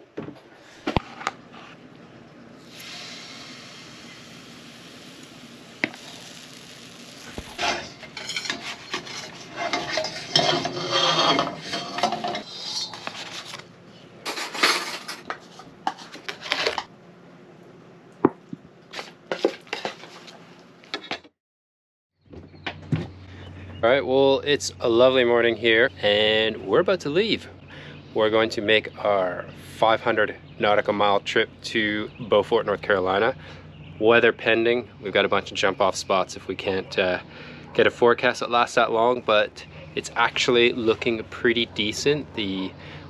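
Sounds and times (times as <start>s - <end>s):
batter sizzling in a pan: 2.6s - 9.2s.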